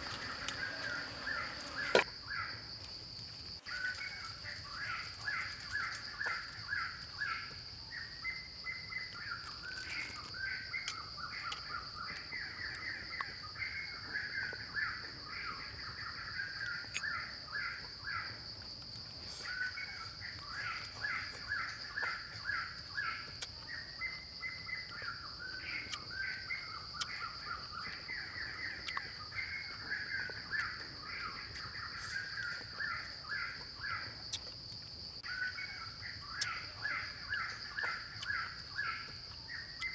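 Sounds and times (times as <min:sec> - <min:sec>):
rapid chattering animal calls: 0:00.0 - 0:02.0
high insect buzz: 0:00.0 - 0:02.4.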